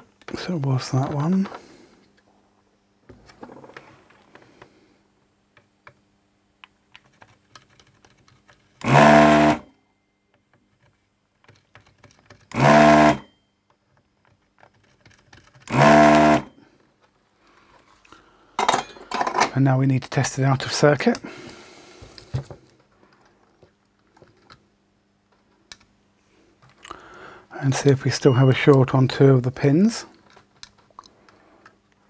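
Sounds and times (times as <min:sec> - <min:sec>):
desoldering pump sucking: 0:08.8 - 0:09.6, 0:12.5 - 0:13.2, 0:15.7 - 0:16.5.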